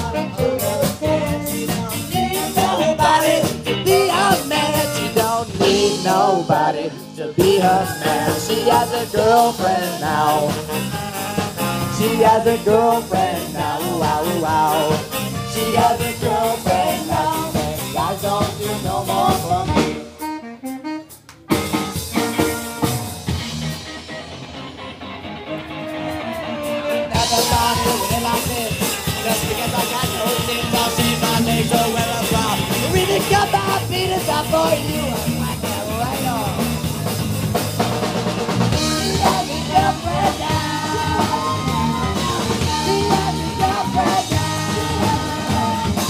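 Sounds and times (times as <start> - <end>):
drums: 0.0 - 46.0
live ska band playing: 0.0 - 46.0
trumpet: 7.6 - 13.0, 19.0 - 23.0
saxophones: 7.7 - 12.8.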